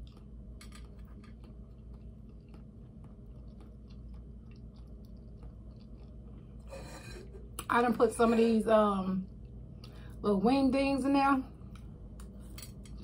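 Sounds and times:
person chewing salad: 0.0s - 7.6s, 11.6s - 13.0s
low hum: 0.0s - 13.0s.

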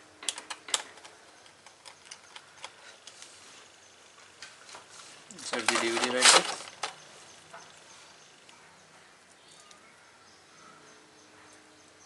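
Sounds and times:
plastic and metal scraping rattle: 4.6s - 7.0s.

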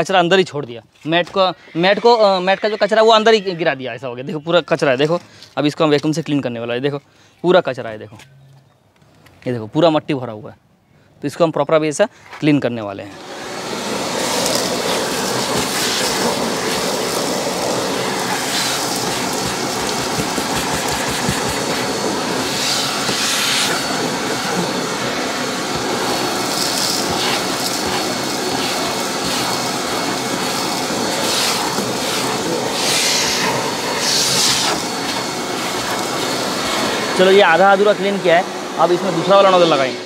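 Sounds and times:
hissing bursts: 13.1s - 39.9s
vacuum cleaner suction on carpet: 13.1s - 40.0s.

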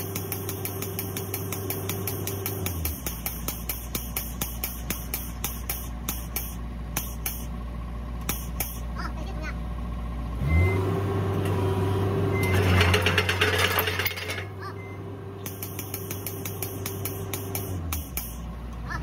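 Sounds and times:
pneumatic tool clicking: 0.0s - 7.5s, 8.2s - 8.9s, 15.4s - 18.5s
engine hum: 0.0s - 19.0s.

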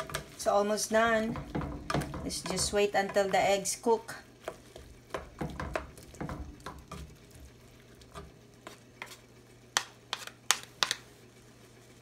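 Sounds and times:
utensil scraping a pan: 0.0s - 7.2s, 9.8s - 11.1s.

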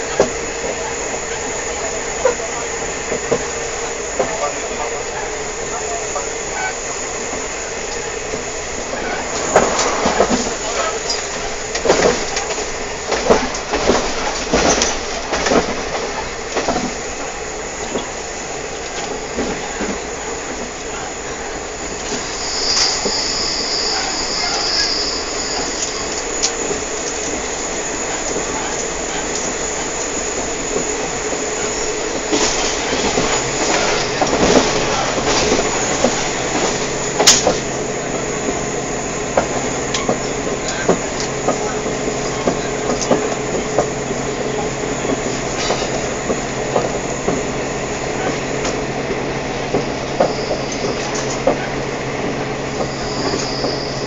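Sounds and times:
train carriage rumble and rattle: 0.0s - 54.0s
high wheel squeal: 8.7s - 11.5s, 22.1s - 26.3s, 50.1s - 51.8s, 52.4s - 54.0s.

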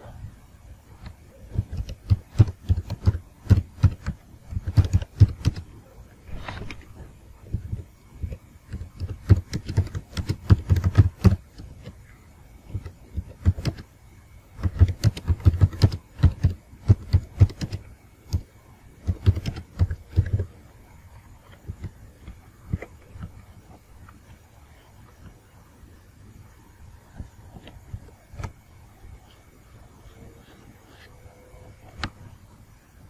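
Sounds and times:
keyboard typing: 1.0s - 5.7s, 6.6s - 12.0s, 12.6s - 13.9s, 14.6s - 20.5s.

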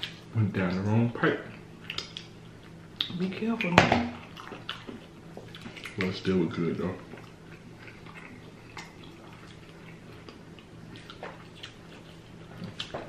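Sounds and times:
low steady hum: 0.0s - 13.0s
crunchy chewing clicks: 1.4s - 3.2s, 7.0s - 13.0s
wet chewing smacks: 1.5s - 3.2s, 4.2s - 6.2s, 7.0s - 13.0s.

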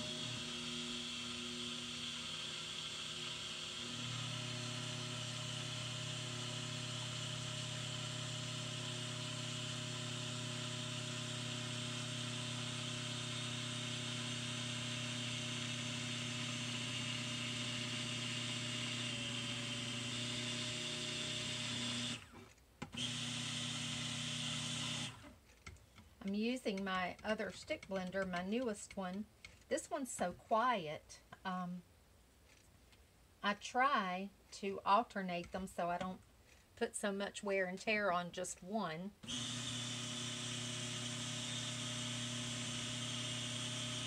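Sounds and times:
stick blender running: 0.0s - 25.4s, 39.2s - 44.0s.

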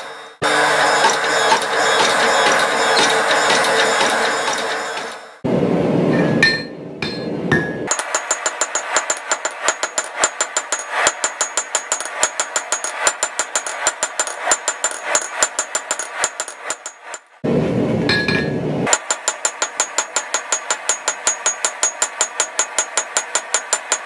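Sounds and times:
hammer striking steel on anvil: 0.7s - 5.2s, 6.1s - 17.4s, 18.1s - 24.0s
low rushing noise: 5.4s - 8.0s, 17.3s - 18.9s.

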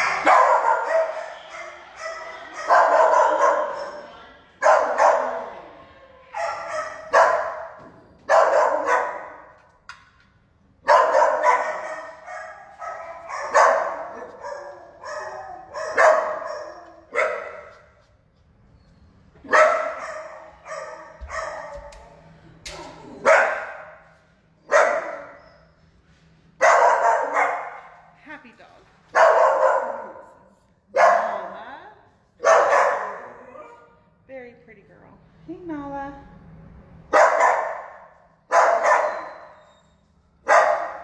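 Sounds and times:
dogs barking in echoing room: 0.0s - 28.2s, 28.8s - 34.3s, 36.5s - 41.0s.

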